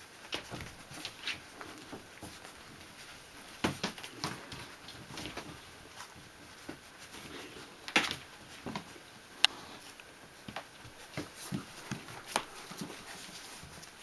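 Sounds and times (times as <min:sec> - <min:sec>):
puppies shuffling on bedding: 0:00.0 - 0:14.0.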